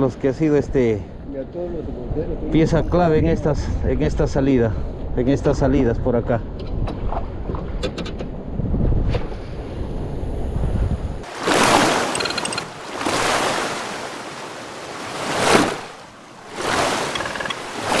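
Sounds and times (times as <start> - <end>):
sea surf washing in: 11.2 - 18.0.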